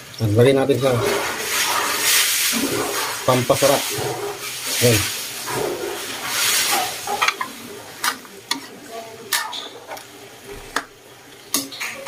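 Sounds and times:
milk hissing into hot wok: 0.9 - 8.0.

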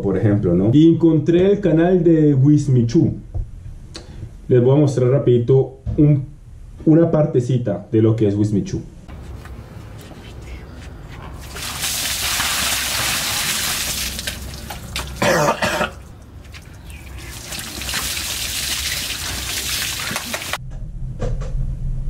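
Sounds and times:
water splashing onto cloth: 11.4 - 20.6
person coughing hard: 15.2 - 16.1.

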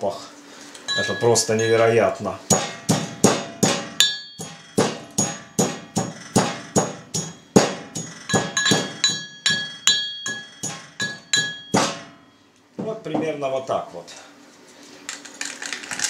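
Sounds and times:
pestle pounding in metal mortar: 2.4 - 12.2.

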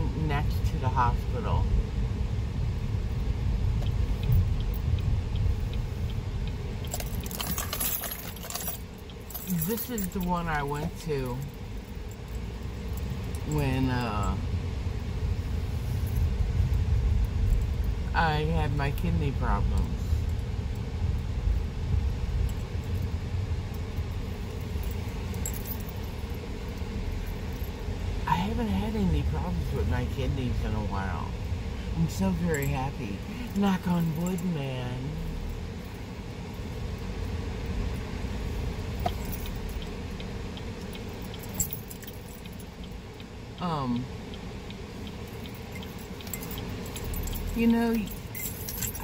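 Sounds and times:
car cabin road rumble: 0.0 - 49.0
light clinks: 6.8 - 13.6, 23.9 - 27.8, 40.9 - 42.7, 45.1 - 49.0.

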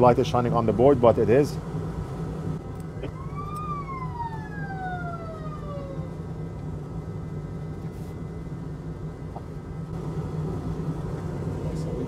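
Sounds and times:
steady low hum: 0.0 - 12.0
siren wailing: 3.0 - 6.4.

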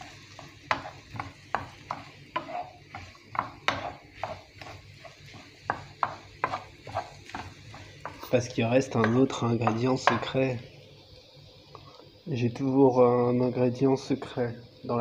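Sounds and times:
wooden spatula scraping frying pan: 0.0 - 10.4.

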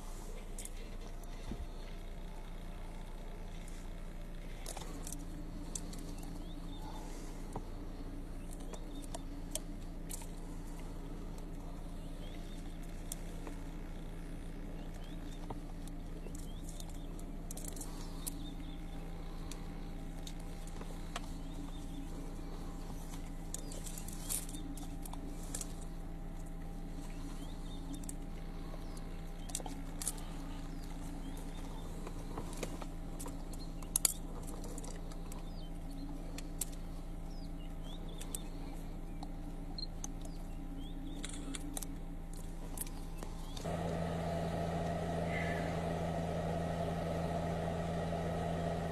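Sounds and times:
vehicle engine idling: 0.0 - 48.9.

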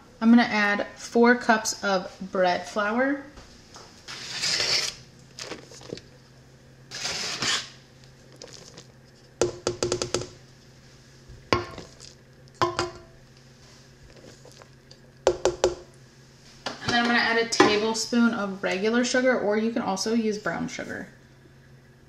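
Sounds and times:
cup tapping metal bowl: 9.4 - 10.3, 12.6 - 13.1.

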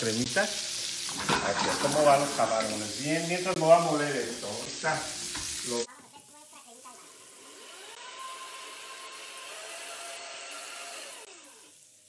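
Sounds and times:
shrimp sizzling in a skillet: 0.0 - 7.9, 11.3 - 12.0.

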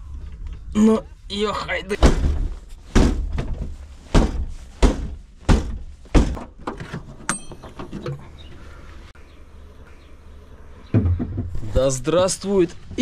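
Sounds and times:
heavy blows on car tailgate: 2.0 - 6.5
metallic click with ring: 7.3 - 7.7.

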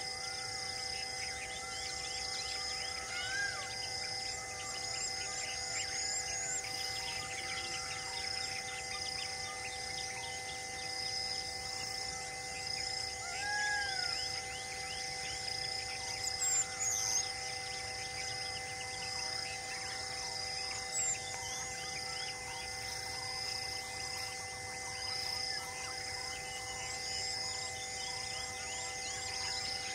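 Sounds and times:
insect-like trill: 0.0 - 29.9
loud arching bird call: 2.5 - 3.8, 13.2 - 14.5.

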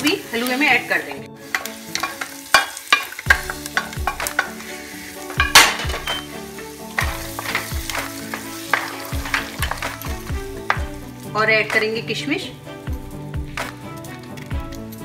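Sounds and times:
hot ghee sizzling: 0.0 - 15.0
wooden spatula scraping metal pan: 1.5 - 11.1.

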